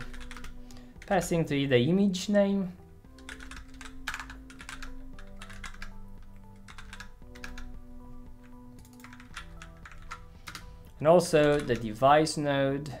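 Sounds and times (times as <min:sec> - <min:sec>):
soft background music: 0:00.0 - 0:13.0.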